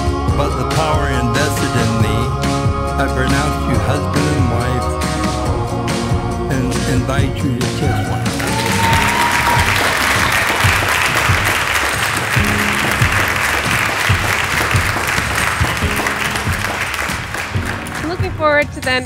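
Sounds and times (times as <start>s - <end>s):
background music: 0.0s - 19.0s
crowd applauding: 8.0s - 19.0s.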